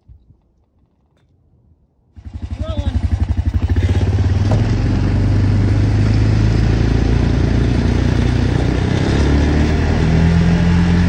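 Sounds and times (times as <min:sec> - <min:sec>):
small vehicle engine humming: 0:02.2 - 0:11.0.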